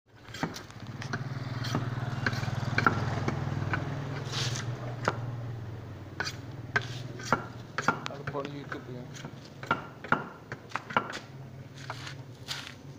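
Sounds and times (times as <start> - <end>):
low engine hum: 0.6 - 12.9
bamboo tubes knocking: 6.2 - 11.3.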